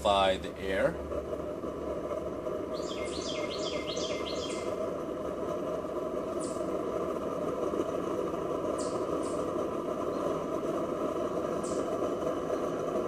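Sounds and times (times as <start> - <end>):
cook stove burning: 0.0 - 13.0
bird chirping: 2.7 - 4.7.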